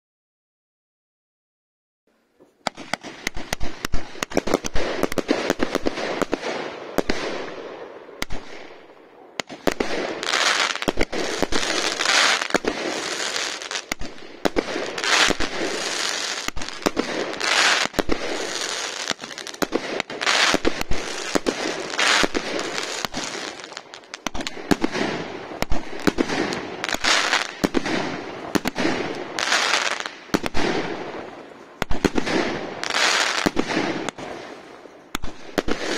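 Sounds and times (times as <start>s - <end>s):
fireworks sharp reports: 2.6s - 35.9s
firework hissing: 9.6s - 30.1s.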